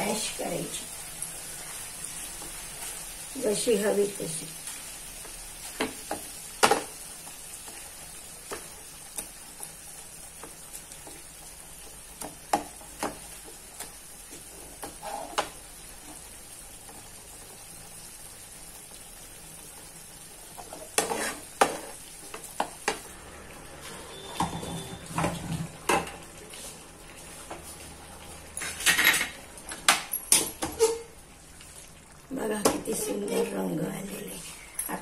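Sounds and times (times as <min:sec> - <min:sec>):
food sizzling in a flat pan: 0:00.0 - 0:35.0
potato masher scraping a pan: 0:20.7 - 0:21.8.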